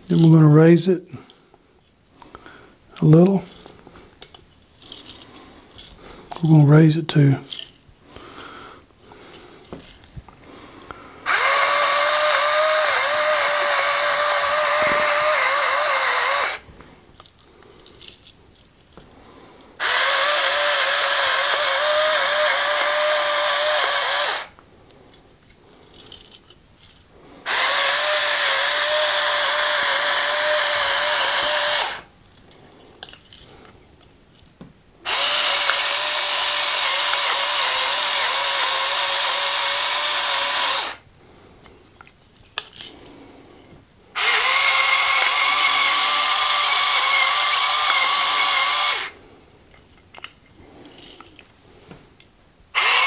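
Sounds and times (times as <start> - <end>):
electric salt grinder whine: 11.3 - 16.6, 19.8 - 24.5, 27.5 - 32.1, 35.1 - 41.0, 44.2 - 49.2, 52.8 - 53.0.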